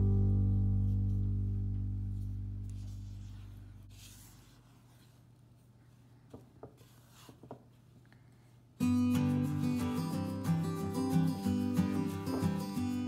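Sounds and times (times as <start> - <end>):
guitar chord ringing: 0.0 - 2.8, 8.8 - 13.0.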